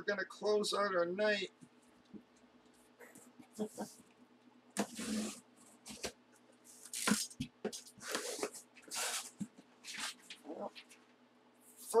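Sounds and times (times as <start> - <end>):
cardboard rustling and scraping: 4.8 - 11.0.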